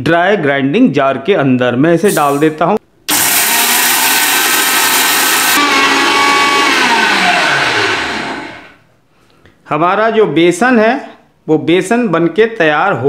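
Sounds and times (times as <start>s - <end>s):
mixer grinder motor whirring: 3.1s - 8.8s.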